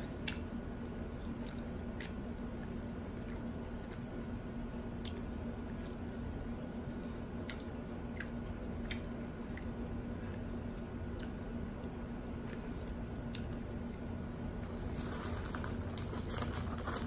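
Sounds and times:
steady low hum: 0.0s - 17.0s
person chewing food: 6.9s - 9.7s, 13.2s - 14.0s, 14.6s - 17.0s.

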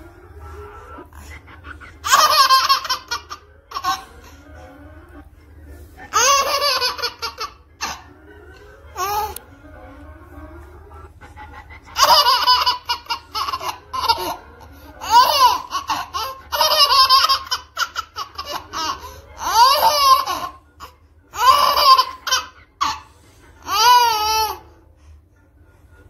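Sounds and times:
baby laughing: 1.0s - 4.5s, 6.1s - 9.5s, 11.5s - 24.7s.

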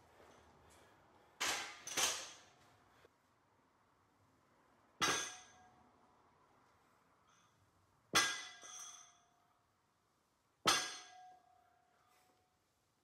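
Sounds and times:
barbell clanging on concrete: 1.4s - 2.6s, 5.0s - 5.8s, 7.3s - 9.4s, 10.6s - 11.8s.

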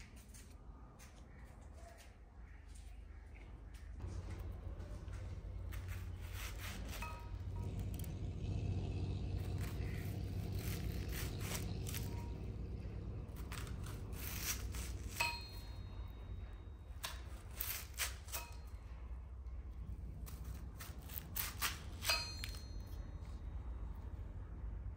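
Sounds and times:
knife crunching through onion: 9.5s - 15.6s, 17.0s - 18.6s, 20.3s - 22.6s.

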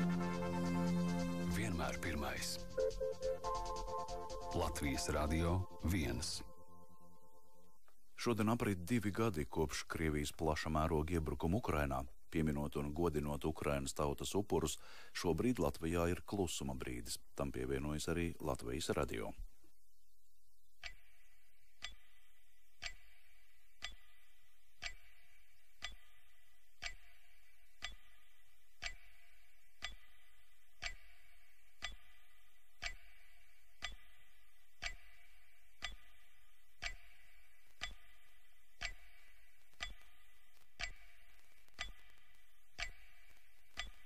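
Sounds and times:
clock ticking: 0.0s - 6.6s, 20.8s - 44.0s.

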